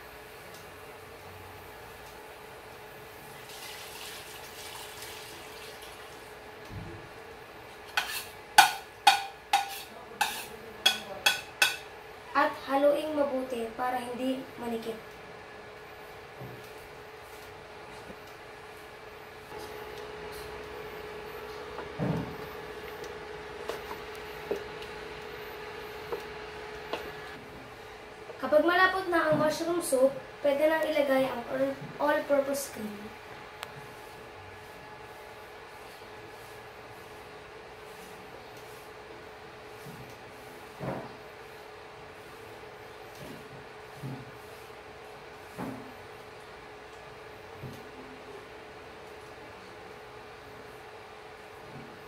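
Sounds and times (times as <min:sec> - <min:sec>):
induction cooktop hum: 0:00.0 - 0:52.0
spatula knocking against pot: 0:08.0 - 0:11.8
spatula stirring thick sauce: 0:08.0 - 0:11.8.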